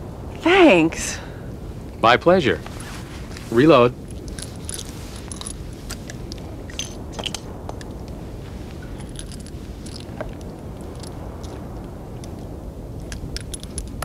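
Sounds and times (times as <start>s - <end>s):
steady background hiss: 0.0s - 14.0s.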